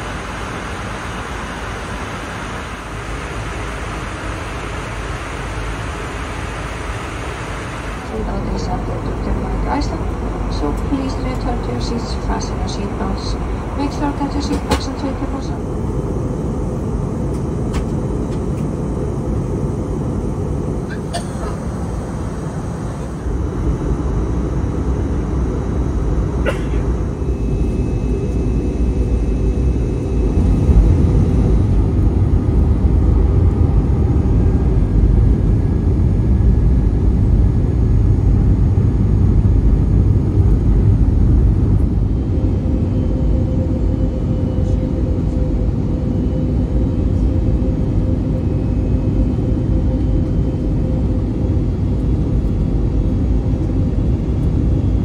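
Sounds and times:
airliner cabin engine rumble: 0.0s - 55.0s
faint steady hum: 0.0s - 55.0s.

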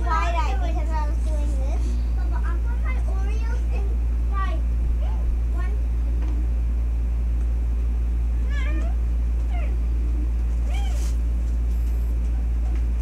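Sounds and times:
steady low hum: 0.0s - 13.0s
cat meowing: 8.4s - 9.8s, 10.6s - 11.2s.

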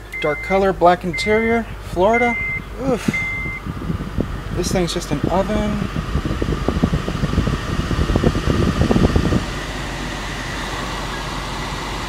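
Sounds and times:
car air conditioning blower: 0.0s - 12.0s.

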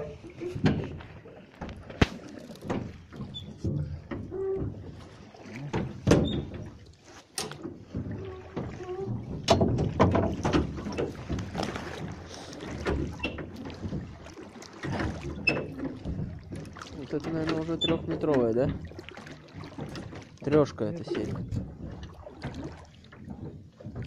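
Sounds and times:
water splashing against hull: 0.0s - 24.0s
knocks on metal boat: 5.7s - 6.7s, 7.9s - 11.6s, 19.6s - 22.7s.

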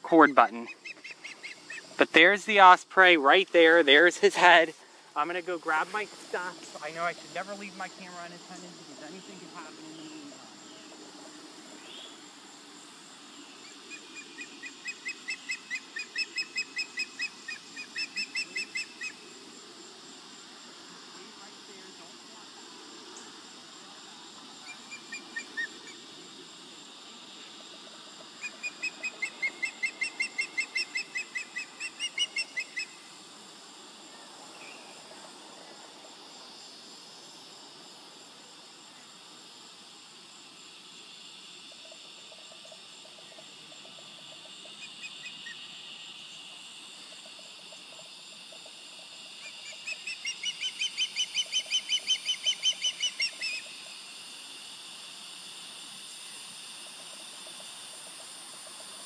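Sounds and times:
osprey whistling calls: 13.6s - 19.2s, 28.4s - 33.0s, 49.6s - 53.7s.

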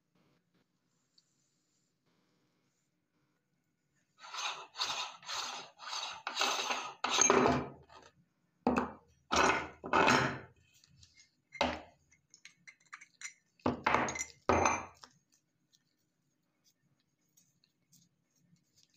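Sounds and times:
metal grinder parts knocking and clinking: 6.3s - 7.8s, 8.7s - 10.5s, 12.6s - 15.0s.

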